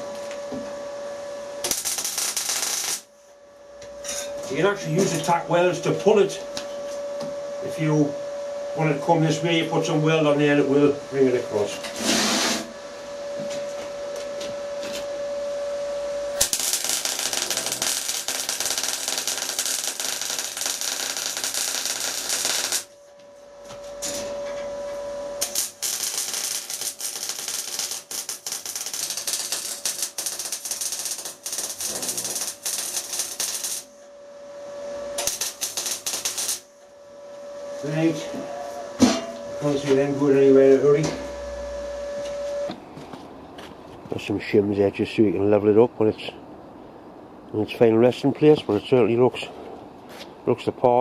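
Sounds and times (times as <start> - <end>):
steady hum: 0.0 - 50.8
welding arc crackling: 1.6 - 3.1, 16.4 - 23.0, 25.4 - 34.0, 35.1 - 36.7.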